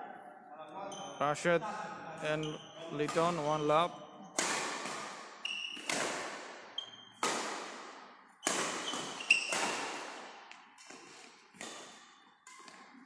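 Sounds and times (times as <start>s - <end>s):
sneakers squeaking on court: 2.3s - 13.0s
badminton racket hitting shuttlecock: 4.4s - 13.0s.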